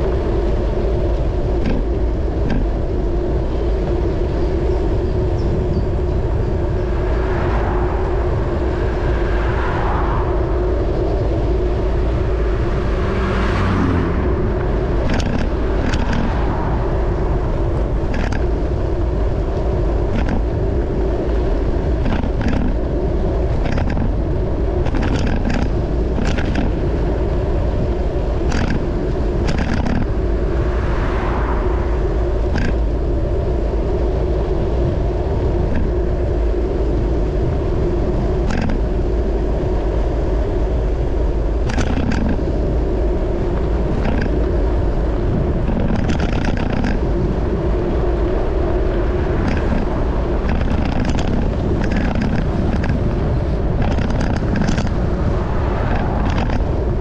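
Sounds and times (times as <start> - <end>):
tyre and road rumble: 0.0 - 57.0
wind buffeting microphone: 0.0 - 57.0
car passing: 6.6 - 34.8
vehicle passing: 6.8 - 19.1.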